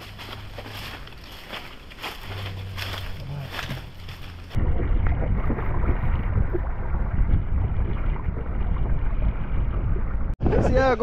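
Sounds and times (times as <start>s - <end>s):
wind rumble on microphone: 3.5s - 11.0s.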